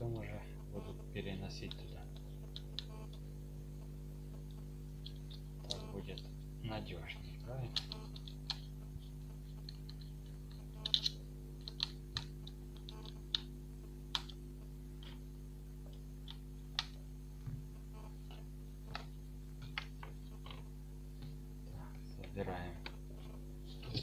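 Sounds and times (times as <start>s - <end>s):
steady low hum: 0.0s - 24.0s
small parts clicking and tapping: 1.6s - 3.2s, 4.4s - 6.4s, 7.4s - 13.5s, 14.1s - 14.4s, 15.8s - 17.6s.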